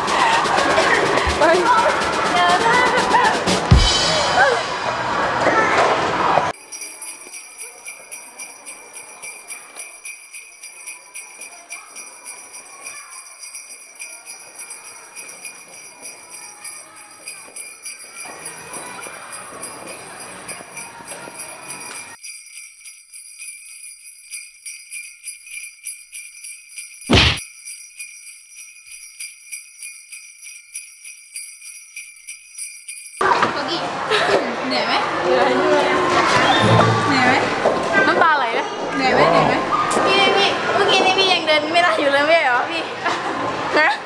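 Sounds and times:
jingle bells shaken: 6.5s - 33.2s
loud thump: 27.1s - 27.4s.

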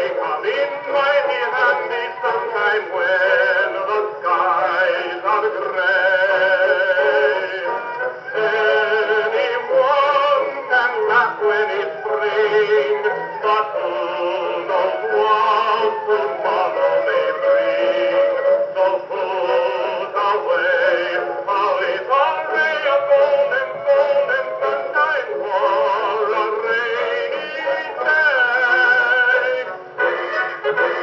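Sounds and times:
band music from phonograph: 0.0s - 31.0s.

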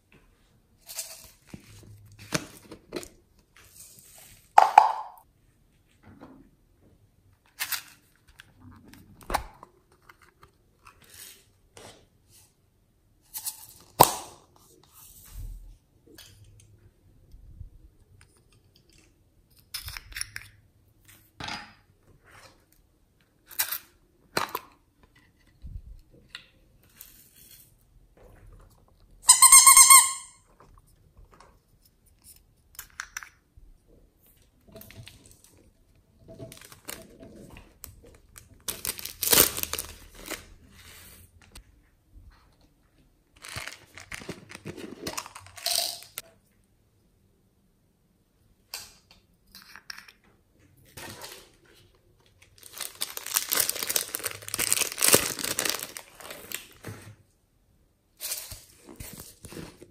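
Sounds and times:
plastic tubs clicking and tapping: 4.6s - 5.2s.

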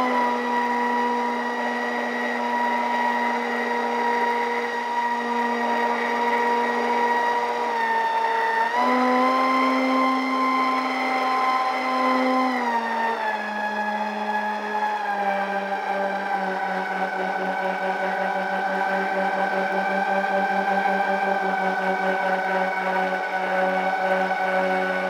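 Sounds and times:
model plane motors whining: 0.0s - 25.0s.

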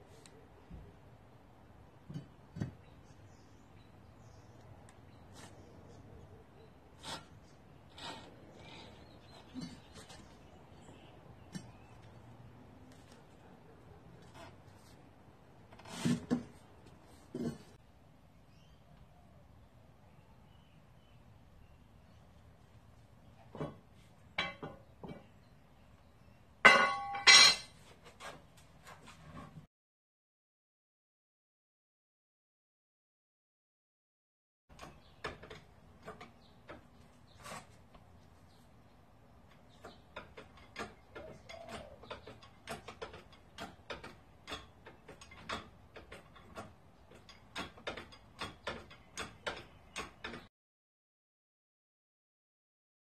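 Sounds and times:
metal tools clanking on tile: 26.7s - 27.8s
hydraulic ram clicking and clunking: 39.5s - 50.5s.

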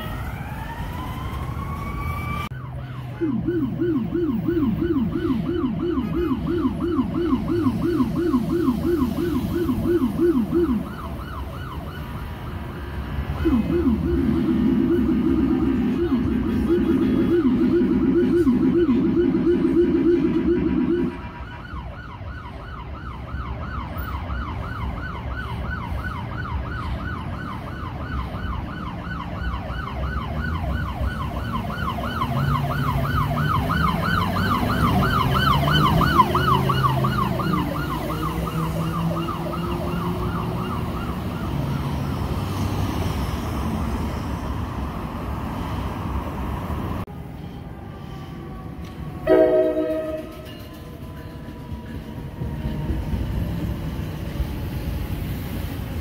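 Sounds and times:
siren yelping: 0.0s - 44.1s, 47.0s - 54.8s
vehicle engine noise: 0.0s - 56.0s
vehicle horn blast: 49.3s - 50.4s.

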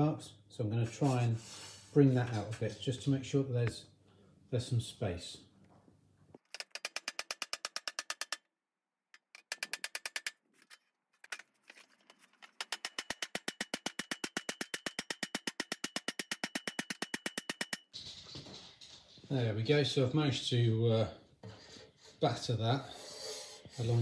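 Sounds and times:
hammer tapping thin metal: 12.6s - 17.9s.

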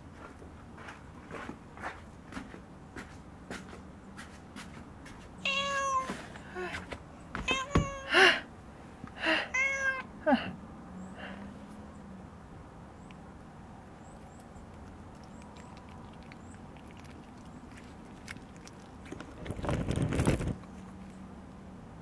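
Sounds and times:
cat chewing food: 13.1s - 21.2s
rustling: 15.1s - 21.2s.

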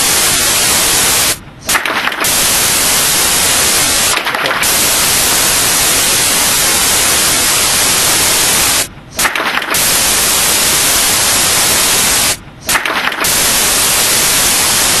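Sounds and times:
static hiss: 0.0s - 15.0s
brief crackle: 1.7s - 2.9s, 9.2s - 10.3s, 12.6s - 14.4s.

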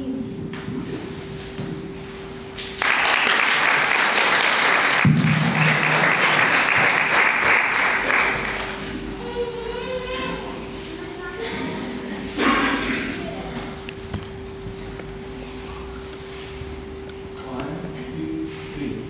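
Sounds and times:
audience clapping: 2.6s - 9.2s.

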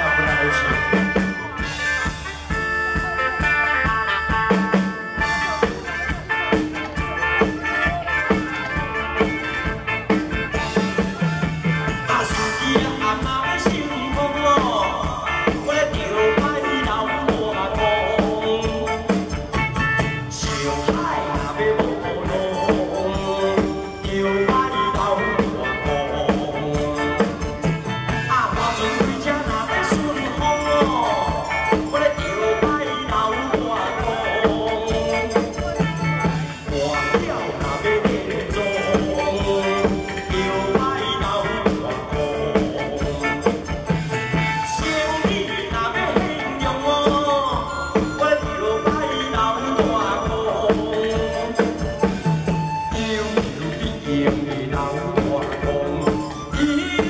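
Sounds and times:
man singing into microphone: 0.0s - 1.7s, 10.5s - 19.5s, 20.2s - 57.0s
drums: 0.0s - 57.0s
electric guitar: 0.0s - 57.0s.

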